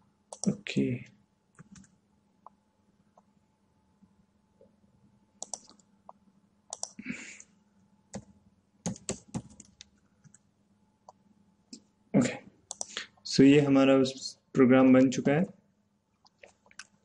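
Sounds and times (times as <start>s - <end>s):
computer keyboard typing: 0.3s - 0.6s, 1.6s - 1.9s, 5.4s - 5.9s, 6.7s - 7.0s, 8.1s - 10.4s, 12.7s - 13.0s.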